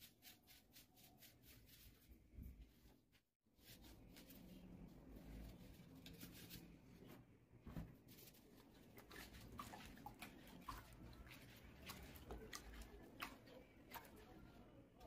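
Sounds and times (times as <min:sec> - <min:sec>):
hands rubbing a vase: 0:00.0 - 0:07.2.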